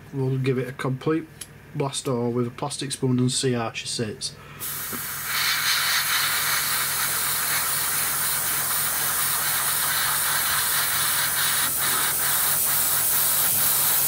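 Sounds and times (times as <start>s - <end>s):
faint steady hum: 0.0s - 14.0s
airbrush hissing: 4.6s - 14.0s.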